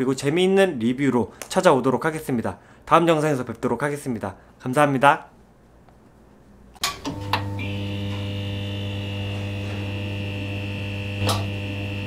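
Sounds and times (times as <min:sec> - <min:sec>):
electrical buzzing hum: 0:06.8 - 0:12.0
high whine: 0:06.8 - 0:12.0.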